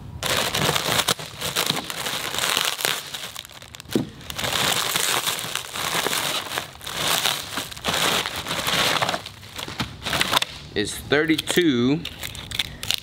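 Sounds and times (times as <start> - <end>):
foil crinkling: 0.2 - 10.5.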